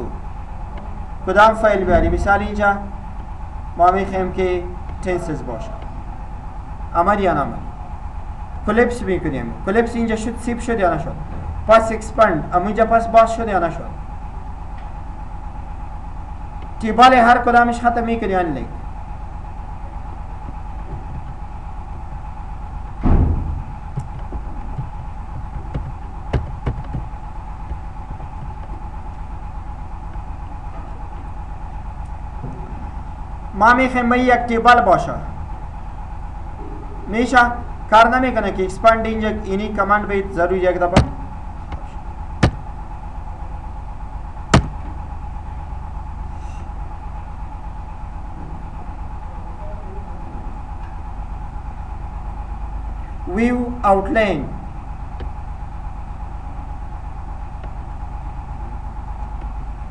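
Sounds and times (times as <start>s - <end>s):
steady background hum: 0.0s - 59.9s
loud low thump: 1.8s - 3.0s, 22.9s - 28.8s, 41.0s - 42.7s, 44.5s - 45.0s
constant high tone: 49.3s - 50.9s.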